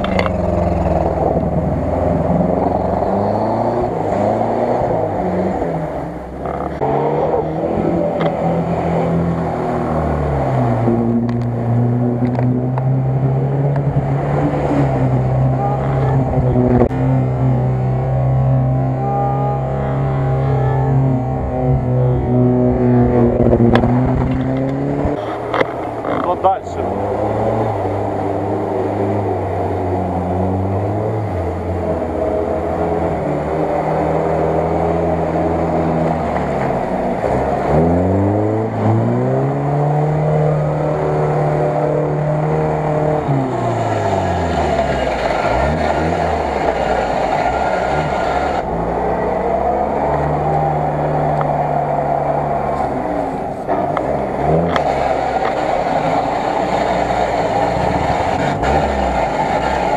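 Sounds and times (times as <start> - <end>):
off-road vehicle engine revving: 0.0 - 59.9
vehicle wading through water: 24.9 - 59.9.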